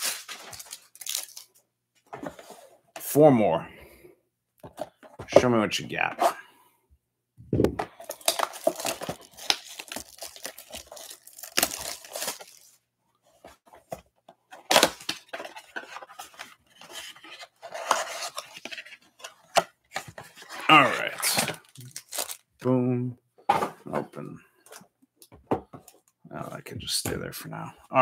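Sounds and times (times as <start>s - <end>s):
shrink-wrap tearing and crinkling: 0.0s - 1.6s, 8.0s - 12.7s, 21.0s - 22.4s.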